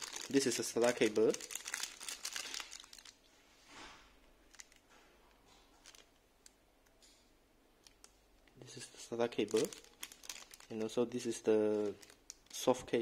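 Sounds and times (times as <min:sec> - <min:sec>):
plastic bag rustling: 0:00.0 - 0:03.9, 0:04.5 - 0:05.0, 0:05.6 - 0:06.1, 0:09.2 - 0:13.0.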